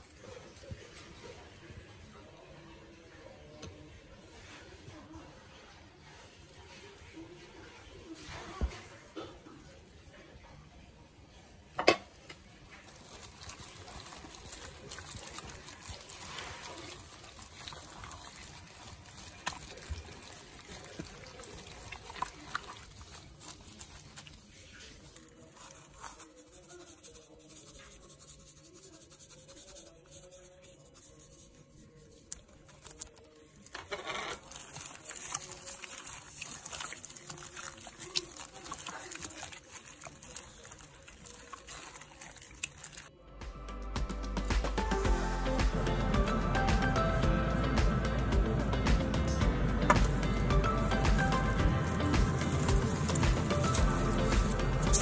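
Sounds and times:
wet squelching and sloshing: 0:12.4 - 0:26.1, 0:34.3 - 0:43.2, 0:49.9 - 0:55.0.

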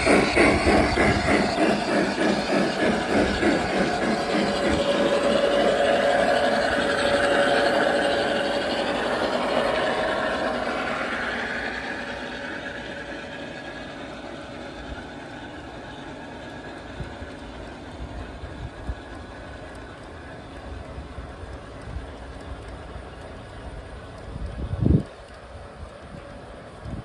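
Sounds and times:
model train wheels rumbling: 0:00.0 - 0:27.0
motor whine: 0:00.0 - 0:27.0.

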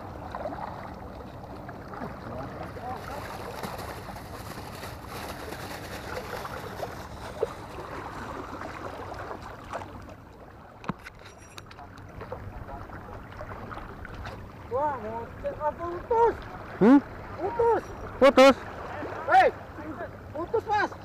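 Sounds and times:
water washing: 0:00.0 - 0:10.2.

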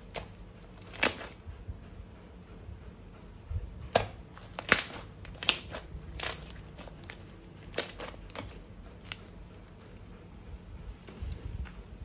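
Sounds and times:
crunchy slime crackling: 0:00.0 - 0:01.4, 0:03.9 - 0:09.8.

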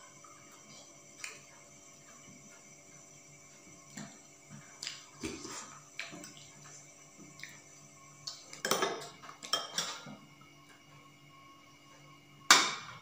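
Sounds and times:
spoons clinking on bowls: 0:08.6 - 0:10.1.

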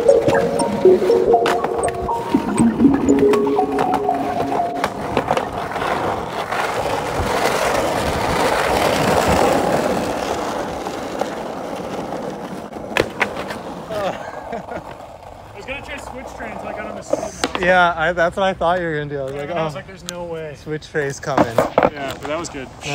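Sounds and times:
skateboard wheels rolling: 0:04.7 - 0:17.7, 0:21.2 - 0:22.9
skateboard clacks: 0:04.8 - 0:14.0, 0:14.8 - 0:17.7.

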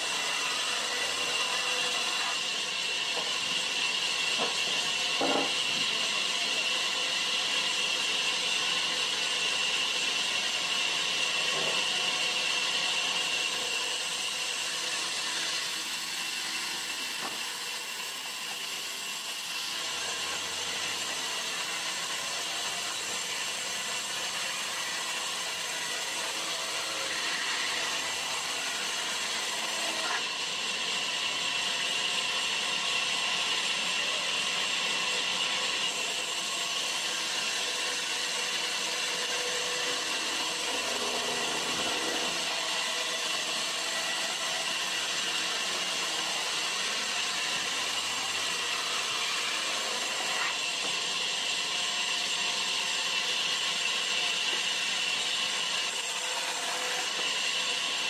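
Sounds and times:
band saw cutting wood: 0:00.0 - 0:58.0.

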